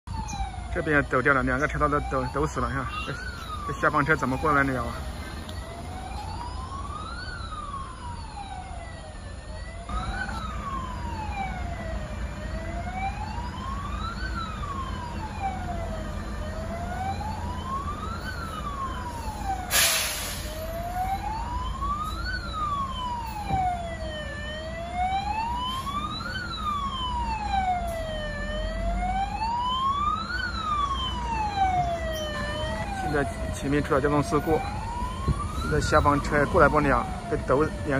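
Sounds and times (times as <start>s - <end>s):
emergency vehicle siren wailing: 0.1s - 37.9s
idling vehicles rumbling: 0.1s - 37.9s
short loud hiss: 19.7s - 20.6s.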